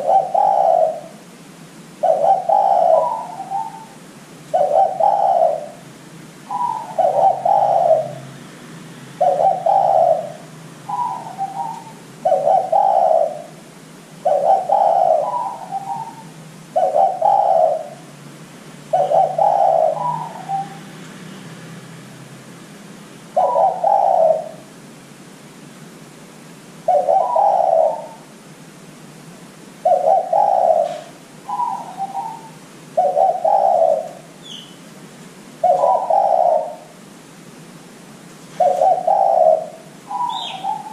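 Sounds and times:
dove cooing: 0.0s - 1.3s, 2.0s - 8.4s, 9.2s - 18.2s, 18.9s - 21.0s, 23.3s - 24.8s, 26.8s - 28.4s, 29.8s - 34.7s, 35.6s - 37.0s, 38.6s - 40.9s.

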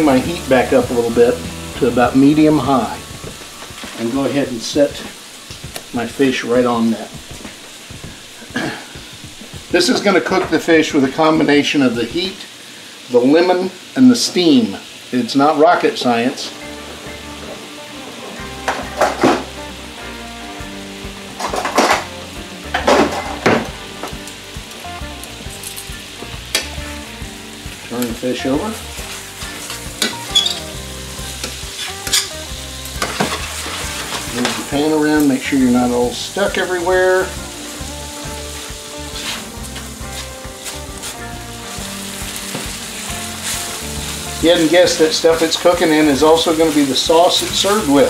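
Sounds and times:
fish sizzling in a frying pan: 0.0s - 48.0s
spatula scraping a pan: 29.4s - 30.8s, 31.4s - 32.4s, 33.0s - 34.7s, 38.2s - 41.3s.

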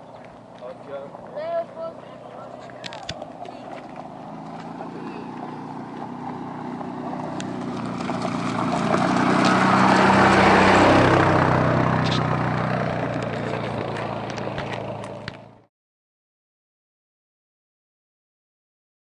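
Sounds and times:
tyres crunching over gravel: 0.0s - 15.5s
utility vehicle engine passing: 0.0s - 15.7s.

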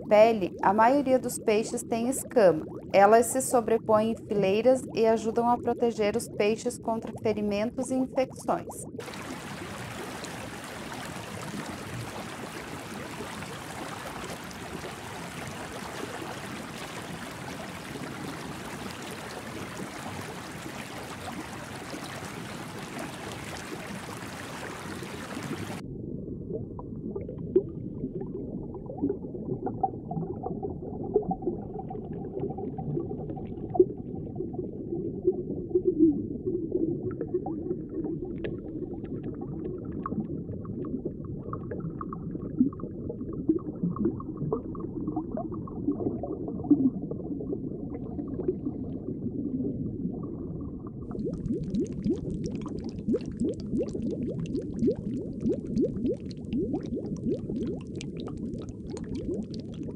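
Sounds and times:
muffled underwater ambience: 0.0s - 59.9s
rushing water: 8.5s - 25.8s
underwater pops: 38.3s - 40.2s.

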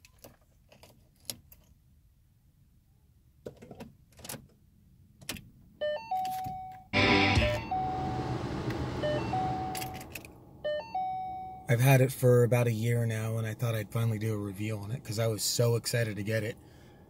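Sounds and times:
electronic warning chime: 7.0s - 11.7s
car engine starting and idling: 7.0s - 17.0s.

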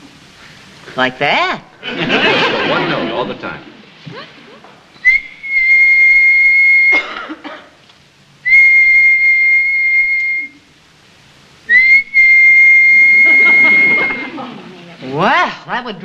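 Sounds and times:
man whistling a high note: 5.0s - 7.0s, 8.4s - 10.7s, 11.7s - 14.3s.

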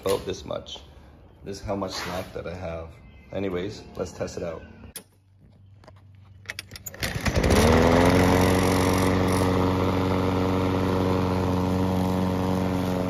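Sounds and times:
lawn mower engine running: 6.6s - 13.0s.

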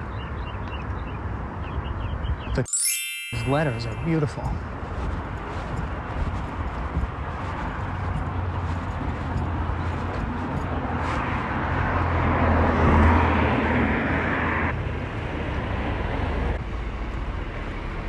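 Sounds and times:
low traffic rumble: 3.6s - 18.0s
vehicle passing: 4.6s - 18.0s.

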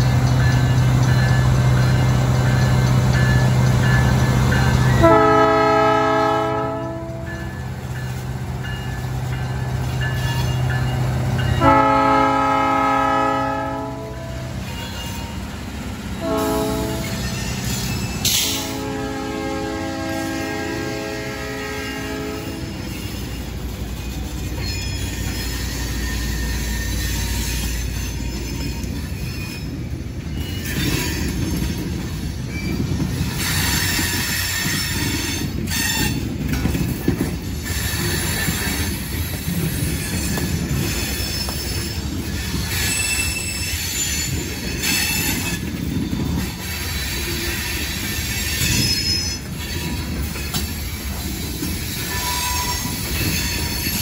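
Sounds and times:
diesel locomotive engine rumble: 0.0s - 54.0s
wheels clattering on rails: 22.7s - 54.0s
high-pitched wheel squeal: 40.0s - 45.6s, 47.0s - 54.0s.

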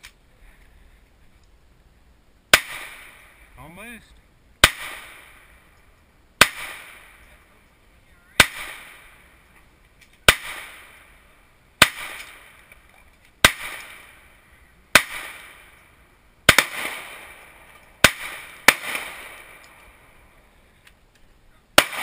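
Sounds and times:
pistol shots echoing: 2.5s - 3.5s, 4.6s - 5.6s, 6.4s - 7.4s, 8.4s - 9.4s, 10.3s - 11.2s, 11.8s - 12.8s, 13.4s - 14.3s, 14.9s - 15.8s, 16.5s - 20.2s, 21.8s - 22.0s.

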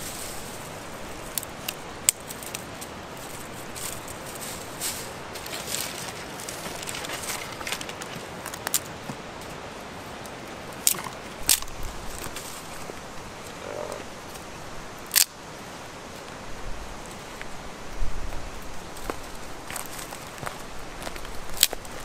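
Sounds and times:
dry leaves and sticks rustling: 0.0s - 22.0s
twig snaps: 10.8s - 11.8s, 15.1s - 15.4s.

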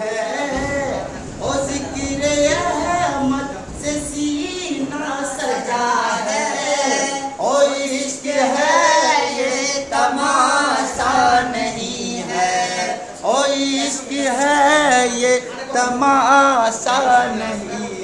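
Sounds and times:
man singing unaccompanied: 0.0s - 18.0s.

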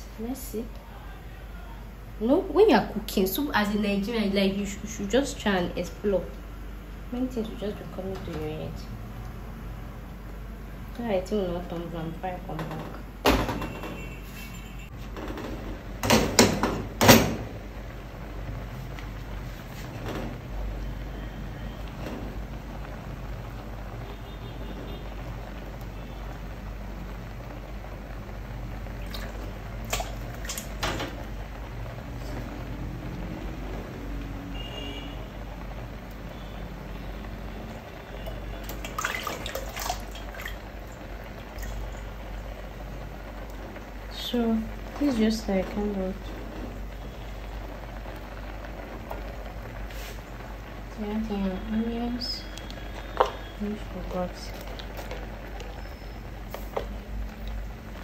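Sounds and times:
pot bubbling at a boil: 0.0s - 58.0s
liquid splashing and dripping: 28.8s - 31.4s, 38.2s - 42.4s.

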